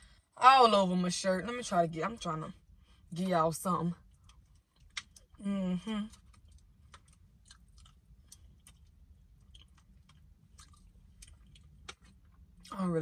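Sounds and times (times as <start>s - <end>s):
faint chewing and mouth clicks: 4.0s - 12.8s.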